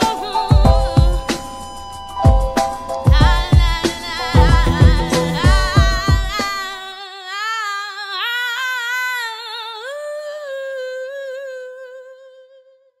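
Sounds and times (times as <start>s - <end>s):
person singing or humming: 3.2s - 13.0s.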